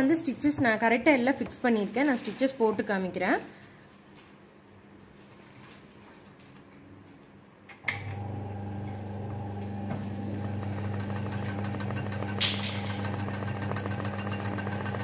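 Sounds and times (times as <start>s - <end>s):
sewing machine stitching: 9.2s - 15.0s.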